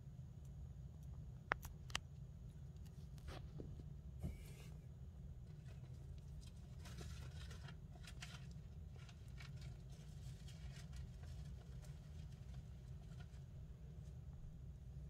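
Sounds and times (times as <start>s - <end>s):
steady low hum: 0.0s - 15.0s
crackling and rustling in bark: 5.4s - 14.4s.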